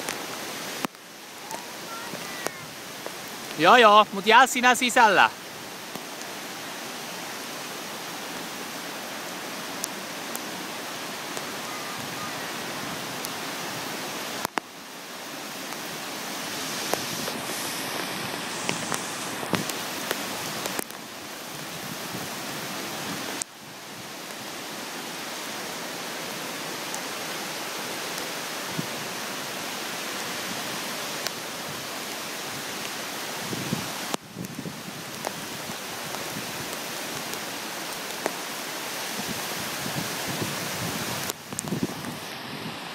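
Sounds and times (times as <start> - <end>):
raindrops ticking close by: 0.0 - 7.0, 7.6 - 11.7, 12.5 - 16.0, 16.9 - 22.6, 33.9 - 39.2, 41.2 - 42.2
heavy rain pouring: 0.0 - 42.9.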